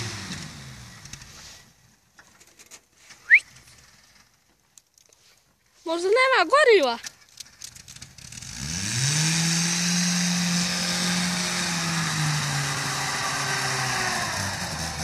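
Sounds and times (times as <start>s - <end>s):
off-road vehicle engine revving: 0.0s - 1.6s, 7.9s - 15.0s.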